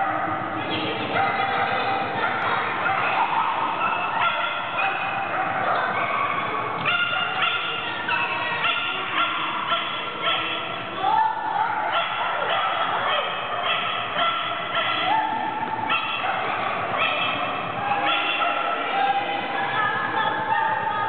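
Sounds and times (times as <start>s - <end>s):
dog barking and yipping: 2.8s - 10.8s, 11.7s - 15.3s, 15.9s - 18.9s.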